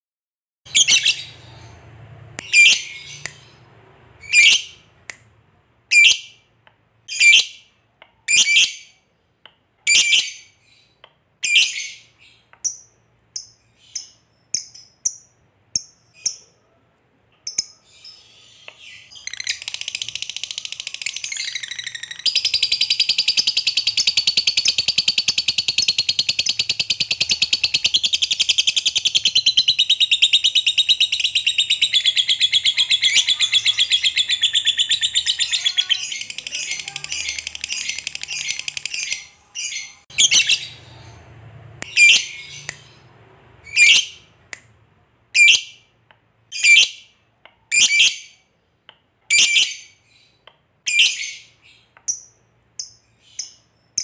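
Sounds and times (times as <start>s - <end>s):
lovebird calling: 17.5s - 41.2s, 41.8s - 43.0s
lovebird chattering trill: 19.2s - 41.2s.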